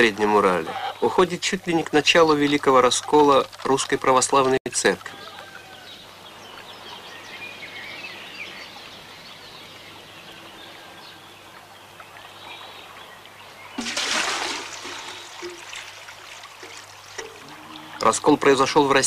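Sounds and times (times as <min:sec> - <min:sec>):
small birds chirping: 0:00.0 - 0:04.0, 0:04.8 - 0:13.9
water poured into metal pail: 0:13.8 - 0:18.7.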